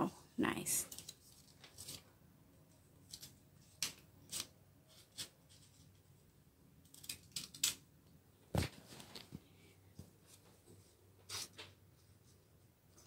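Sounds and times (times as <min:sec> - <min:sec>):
scissors snipping paper: 0:03.0 - 0:05.7, 0:06.9 - 0:07.8.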